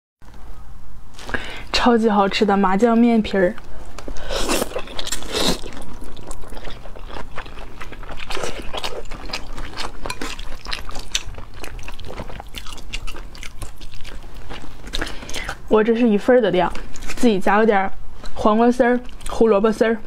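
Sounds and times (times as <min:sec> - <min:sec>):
wet chewing with crunches: 0:04.0 - 0:15.7
slurping noodles: 0:04.2 - 0:07.0.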